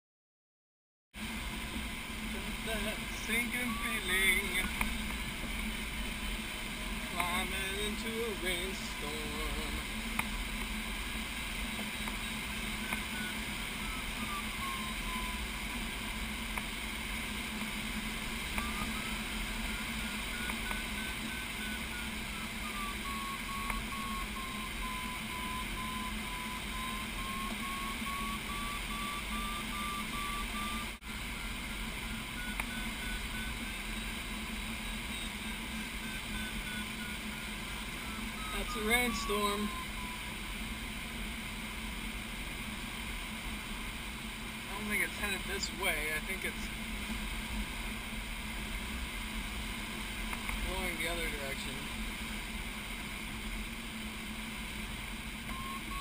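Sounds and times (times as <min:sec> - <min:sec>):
rush of air in cockpit: 0:01.2 - 0:56.0
variometer beeping: 0:02.4 - 0:40.8, 0:55.4 - 0:56.0.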